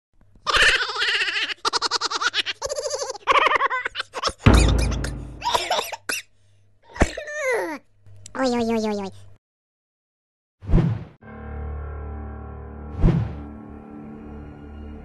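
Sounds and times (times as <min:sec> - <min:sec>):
loud deep boom: 0:04.5 - 0:05.5.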